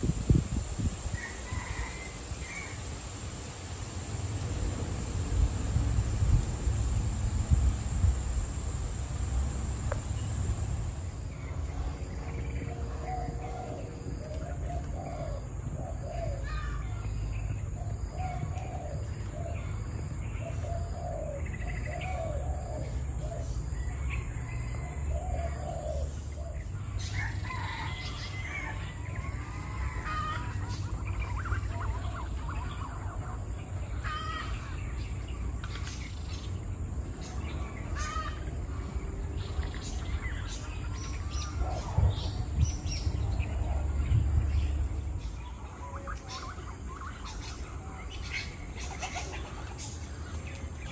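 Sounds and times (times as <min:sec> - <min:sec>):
wind rumbling on microphone: 0:00.0 - 0:02.1, 0:04.4 - 0:14.3, 0:37.5 - 0:45.7.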